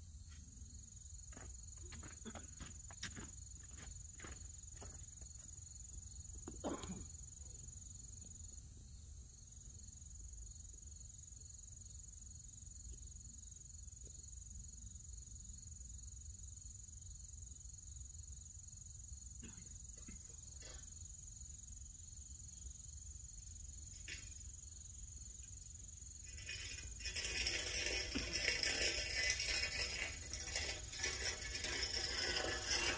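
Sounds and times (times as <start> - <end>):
insects trilling: 0.0 - 32.9
loud rattling noise: 26.2 - 32.9.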